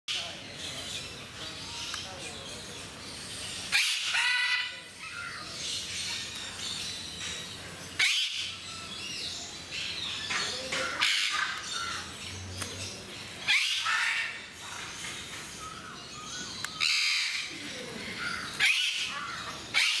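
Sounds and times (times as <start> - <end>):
parrots squawking: 3.6 - 6.2, 8.0 - 8.6, 10.2 - 12.2, 13.4 - 14.9, 16.2 - 20.0.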